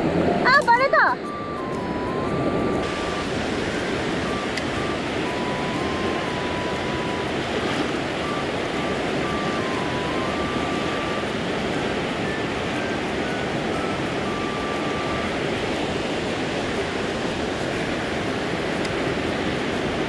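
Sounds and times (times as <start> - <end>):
fast-flowing stream rushing: 1.1 - 20.0.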